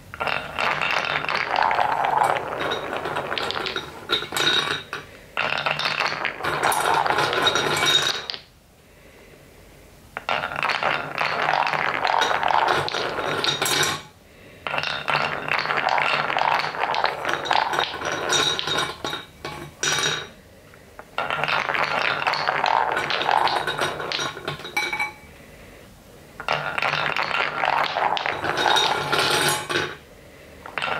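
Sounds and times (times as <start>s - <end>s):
wooden balls rolling and clattering: 0.0s - 8.5s, 10.2s - 25.3s, 26.4s - 30.9s.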